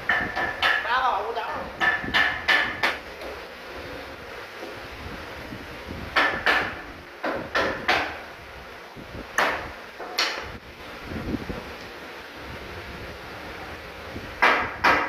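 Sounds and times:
knocks on wooden bed frame: 0:06.2 - 0:08.2.

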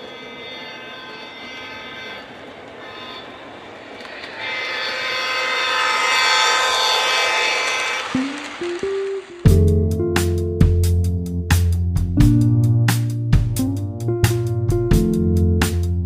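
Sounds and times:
train horn blasts: 0:00.0 - 0:08.8
train running on track: 0:00.0 - 0:09.8.

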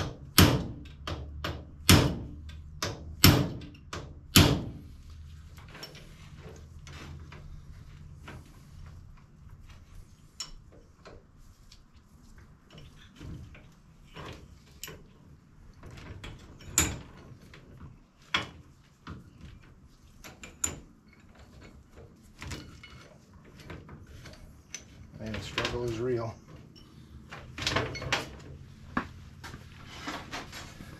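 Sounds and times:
sharp metallic knocks: 0:00.0 - 0:04.8
metal chain and tool clinking: 0:22.4 - 0:23.2.

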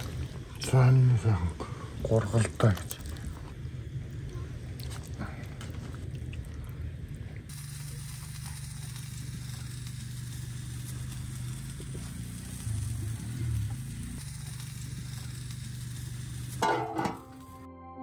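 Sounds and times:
steady low hum: 0:00.0 - 0:17.7
gentle background music: 0:17.2 - 0:18.0.

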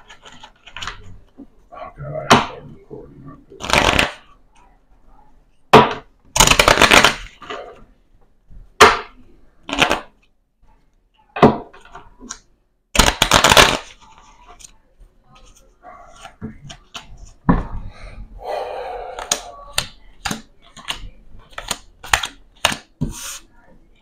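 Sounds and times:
playing cards riffle-shuffled: 0:03.6 - 0:04.3
cards snapping: 0:19.2 - 0:22.9.

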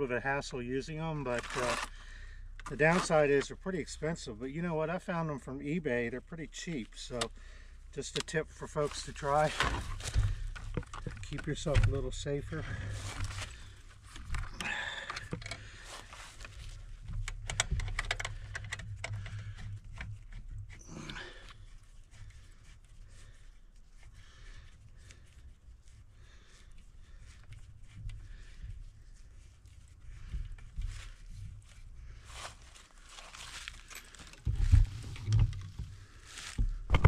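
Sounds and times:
rustling in dry leaves: 0:25.2 - 0:35.2, 0:35.9 - 0:36.6.

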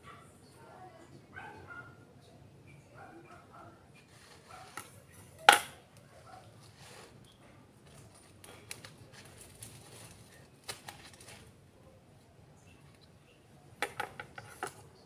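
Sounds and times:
stems rustling: 0:03.9 - 0:15.0.

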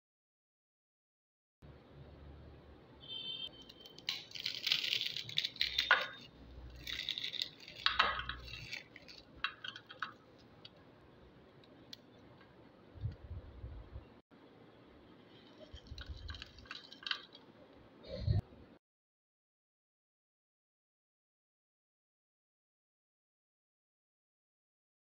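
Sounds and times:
crackers crunching by hand: 0:03.6 - 0:10.8, 0:15.4 - 0:17.6.

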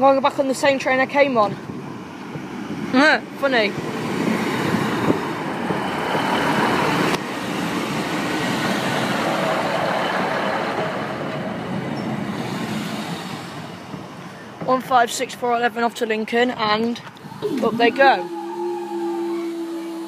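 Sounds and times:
diesel train engine rumble: 0:00.0 - 0:20.0
train wheels on rails: 0:00.0 - 0:20.0.

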